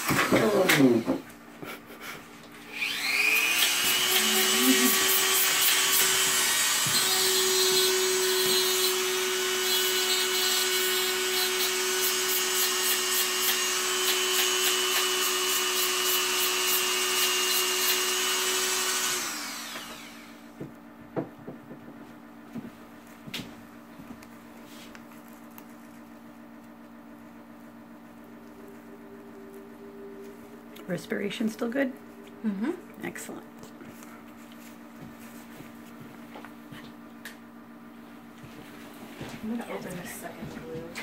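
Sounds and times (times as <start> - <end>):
electric rotary tool whining: 0.0 - 1.3, 2.6 - 20.7.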